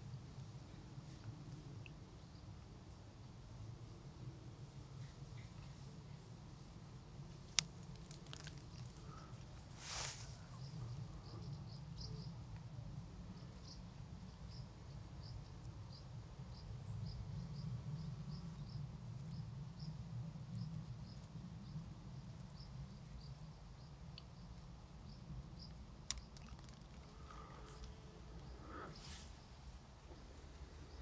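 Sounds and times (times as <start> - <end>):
low steady rumble: 0.0 - 31.0
insect chirping: 7.6 - 12.3, 22.5 - 31.0.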